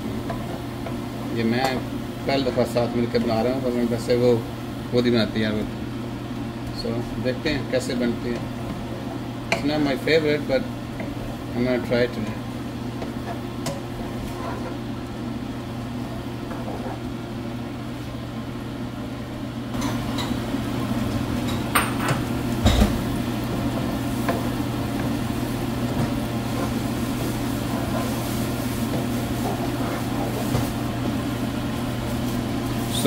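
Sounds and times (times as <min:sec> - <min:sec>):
steady low hum: 0:00.0 - 0:33.0
onion and butter sizzling in a pan: 0:19.8 - 0:33.0.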